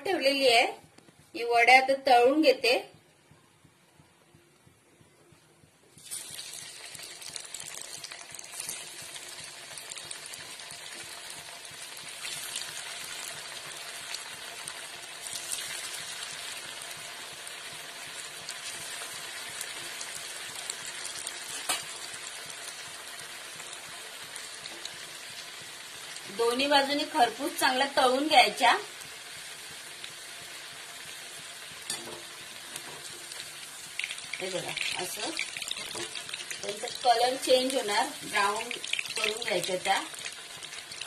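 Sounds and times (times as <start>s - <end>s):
food deep-frying in oil: 5.9s - 41.0s
oil crackling: 6.0s - 22.8s, 33.2s - 41.0s.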